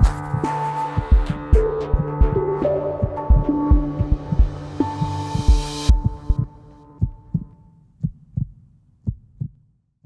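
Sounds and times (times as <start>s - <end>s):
electronic music: 0.0s - 7.0s
low heartbeat-like thumps: 0.0s - 9.7s.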